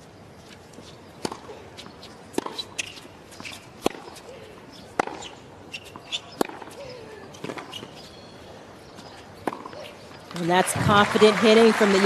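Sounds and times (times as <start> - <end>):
racket hitting tennis ball: 1.2 - 8.0, 9.0 - 10.0.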